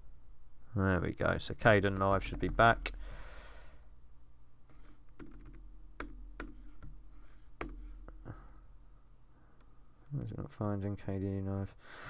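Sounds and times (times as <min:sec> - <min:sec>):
keyboard typing clicks: 0:05.1 - 0:06.6.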